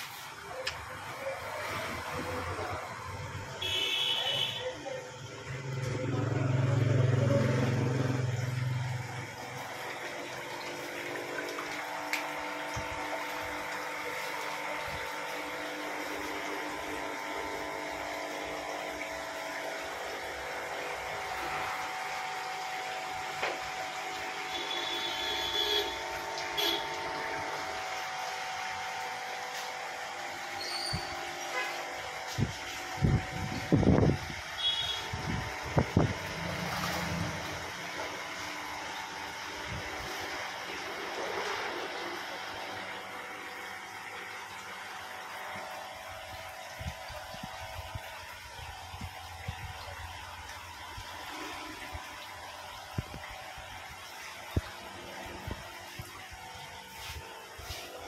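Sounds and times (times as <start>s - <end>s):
air pumps and filters running: 0.0s - 58.0s.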